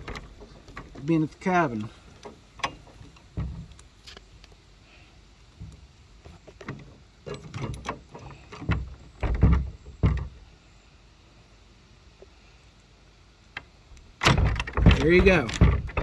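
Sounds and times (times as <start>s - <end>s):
padlock rattling on gate latch: 6.6s - 10.3s, 14.2s - 16.0s.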